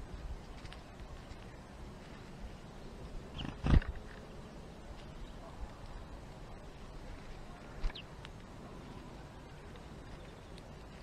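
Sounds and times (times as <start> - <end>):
faint outdoor background: 0.0 - 11.0.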